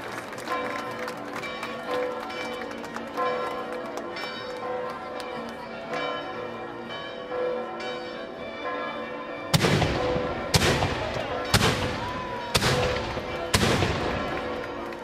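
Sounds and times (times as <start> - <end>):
church bells ringing: 0.0 - 15.0
firework bangs: 9.6 - 14.4.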